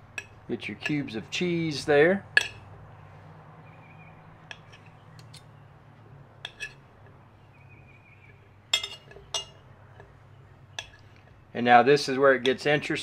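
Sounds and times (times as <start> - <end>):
knife clinking against plate: 2.4 - 2.6, 6.4 - 6.8, 8.7 - 9.6, 10.8 - 11.0.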